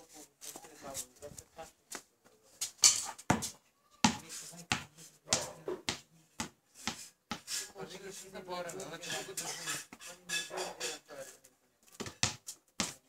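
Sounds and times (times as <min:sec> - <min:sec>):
basketball bouncing on concrete: 0:02.8 - 0:07.5, 0:11.9 - 0:13.0.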